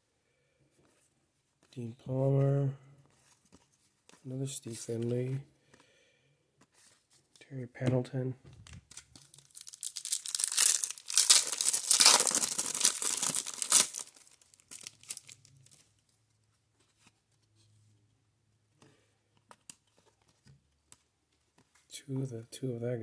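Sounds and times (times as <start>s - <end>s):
foil wrapper tearing and crinkling: 8.9s - 15.8s.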